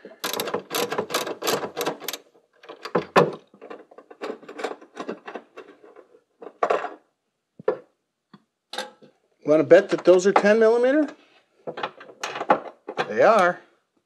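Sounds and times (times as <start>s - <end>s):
tools and parts rattling: 0.0s - 7.1s, 9.8s - 13.5s
hand ratchet clicking: 0.2s - 2.2s.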